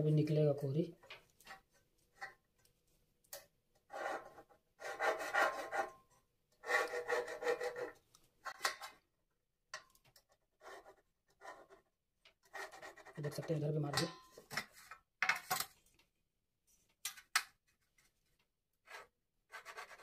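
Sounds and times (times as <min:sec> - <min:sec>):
pen scratching on metal: 0:03.9 - 0:05.9, 0:06.6 - 0:08.0, 0:10.6 - 0:13.6, 0:18.8 - 0:20.0.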